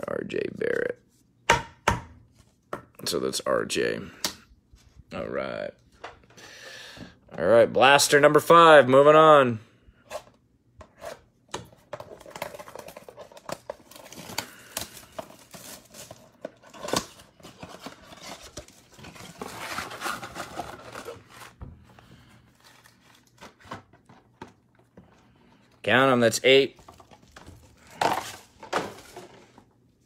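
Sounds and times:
wrapping crinkling: 0:12.0 - 0:21.6
cardboard tearing: 0:12.2 - 0:21.6.

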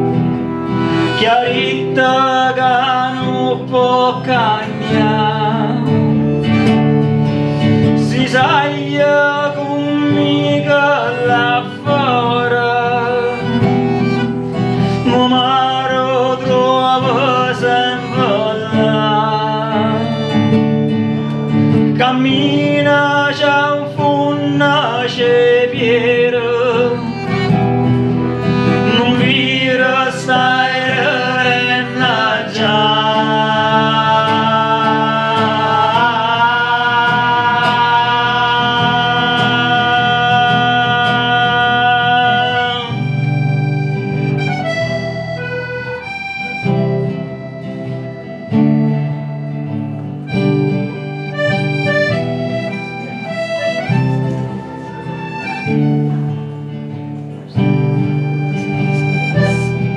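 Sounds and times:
classical guitar: 0:00.0 - 0:59.9
piano accordion: 0:00.0 - 0:59.9
person singing: 0:01.0 - 0:06.6, 0:07.8 - 0:20.5, 0:28.2 - 0:43.7.

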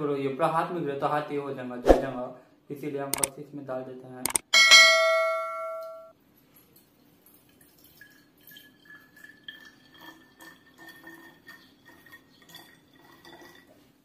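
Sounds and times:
bell-like chime: 0:04.6 - 0:06.1
hollow ringing tone rising: 0:04.6 - 0:06.1
liquid trickling into bottle: 0:07.1 - 0:13.8.

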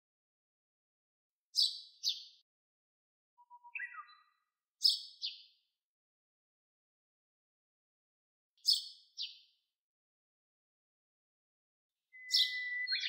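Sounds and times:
sparrow chirping: 0:01.6 - 0:02.4, 0:03.4 - 0:05.5, 0:08.6 - 0:09.4, 0:12.2 - 0:13.0.

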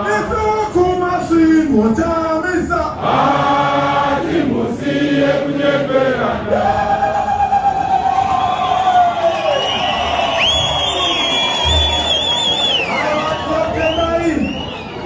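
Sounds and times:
crowd singing a chant: 0:03.0 - 0:07.2.

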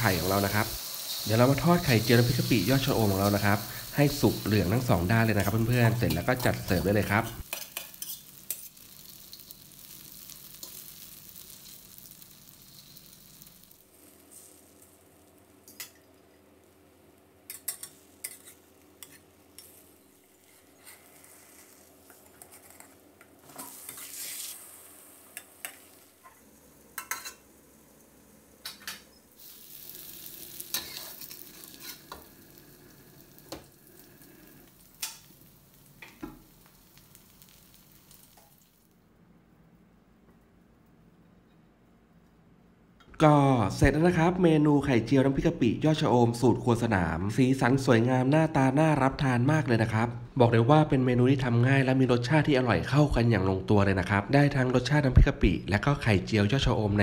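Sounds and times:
omelette sizzling in oil: 0:00.0 - 0:38.9
metal spatula scraping a wok: 0:05.3 - 0:09.4, 0:17.5 - 0:19.8, 0:23.5 - 0:25.8, 0:29.8 - 0:32.2.

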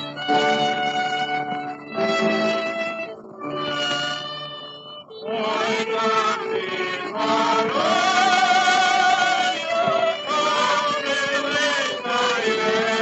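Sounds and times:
vocal quartet singing with orchestra: 0:05.2 - 0:13.0.

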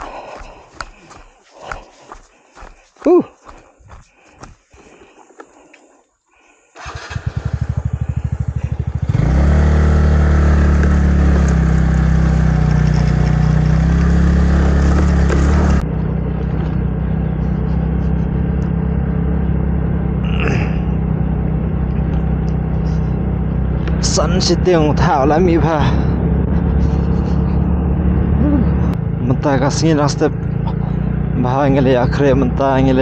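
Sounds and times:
vehicle engine idling and revving: 0:06.8 - 0:33.0.

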